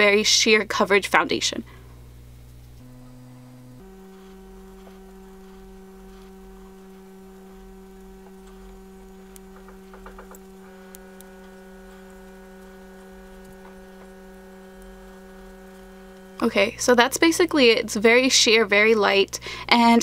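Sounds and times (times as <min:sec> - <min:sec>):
electrical hum: 0:00.0 - 0:20.0
faint clicks: 0:02.4 - 0:16.4.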